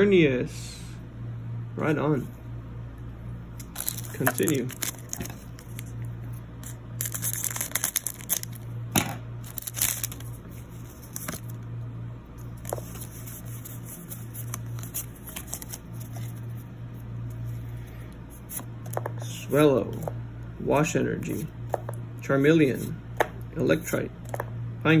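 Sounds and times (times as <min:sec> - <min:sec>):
foil wrapper tearing and crinkling: 0:03.6 - 0:05.9, 0:06.6 - 0:08.6, 0:09.4 - 0:11.6
cards rustling and clicking: 0:03.6 - 0:08.6, 0:09.4 - 0:11.6, 0:12.4 - 0:16.6, 0:18.4 - 0:19.2, 0:24.2 - 0:24.5.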